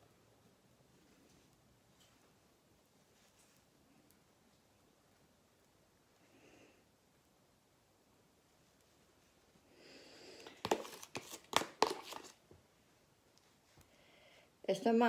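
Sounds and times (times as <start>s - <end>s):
plastic tub rustle: 10.4s - 12.4s.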